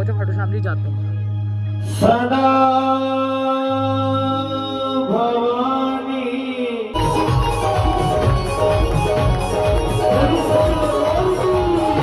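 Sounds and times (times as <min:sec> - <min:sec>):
band with drums: 0:07.0 - 0:12.0.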